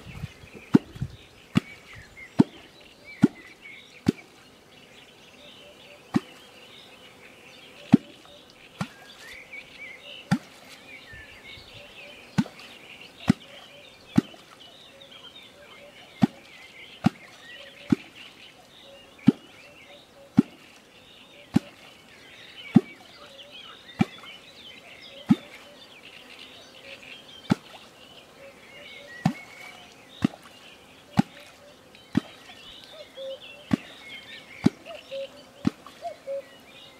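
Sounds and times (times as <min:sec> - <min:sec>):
tool striking water surface: 0:02.4 - 0:03.4, 0:10.3 - 0:10.6, 0:12.4 - 0:12.6, 0:14.2 - 0:14.5, 0:16.2 - 0:18.2, 0:19.2 - 0:19.6, 0:20.4 - 0:20.6, 0:22.7 - 0:23.0, 0:24.0 - 0:24.3, 0:30.2 - 0:30.5, 0:31.2 - 0:31.5, 0:32.1 - 0:32.5, 0:33.6 - 0:33.9, 0:34.6 - 0:34.9, 0:35.6 - 0:36.0.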